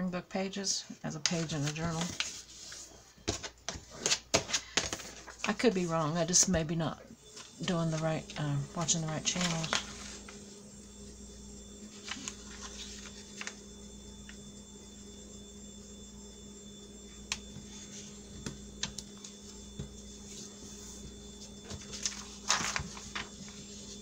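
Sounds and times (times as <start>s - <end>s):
electrical hum: 0.0s - 24.0s
paper rustling and ticks: 3.3s - 5.9s, 8.9s - 10.1s, 21.6s - 23.6s.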